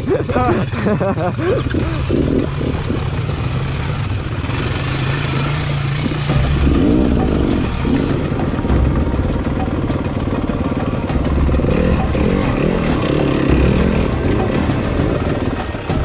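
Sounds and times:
dirt bike engine revving: 0.0s - 16.0s.

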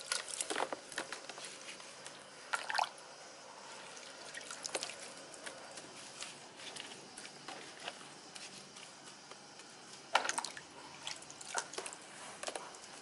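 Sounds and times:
wet rustling of coconut husk: 3.6s - 12.4s
water dripping: 3.9s - 5.7s, 10.1s - 12.8s.

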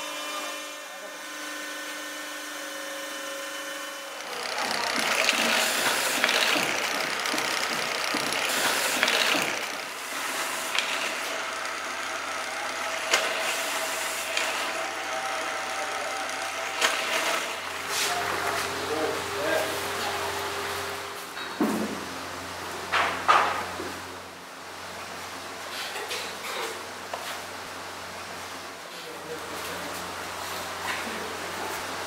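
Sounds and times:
drill press grinding scrape: 0.0s - 20.0s
steady machine hum: 0.0s - 26.1s.

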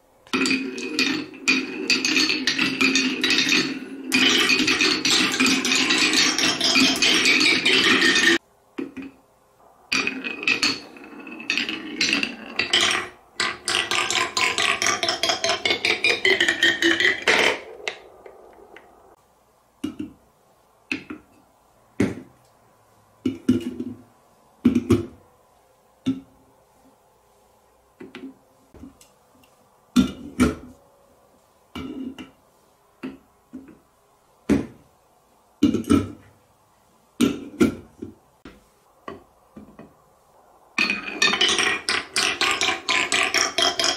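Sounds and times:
marble rolling in wooden tray: 0.3s - 9.2s, 9.9s - 19.2s, 40.7s - 43.9s.

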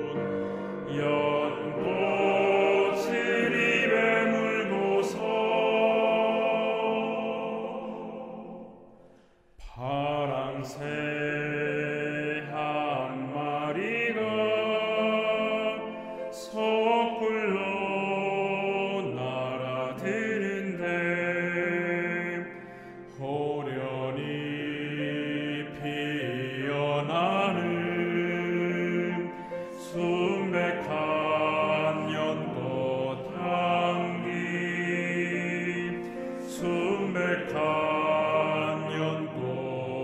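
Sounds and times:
male ensemble singing a hymn: 0.0s - 8.8s, 9.6s - 40.0s.

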